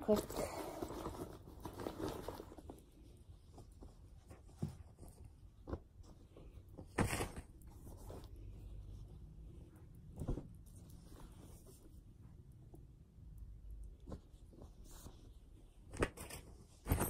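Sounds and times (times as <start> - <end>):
fabric rustling: 0.0 - 12.4.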